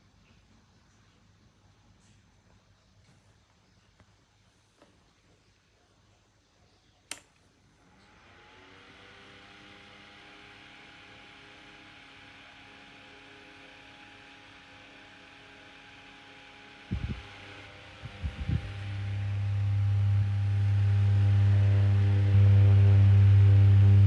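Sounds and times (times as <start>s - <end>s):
rocker switch click: 7.1s - 7.4s
small fan running: 7.1s - 24.0s.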